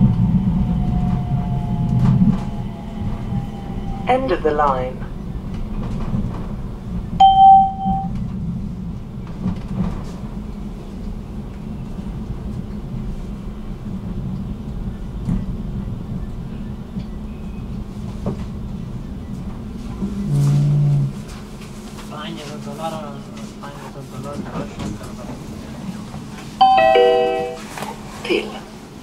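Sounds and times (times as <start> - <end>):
tram rumbling on rails: 0.0 - 29.0
electronic beep: 7.2 - 8.1.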